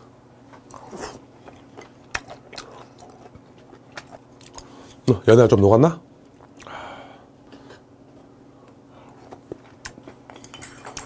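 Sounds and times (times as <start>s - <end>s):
room tone hum: 0.0s - 11.0s
person chewing: 0.5s - 5.0s, 9.0s - 11.0s.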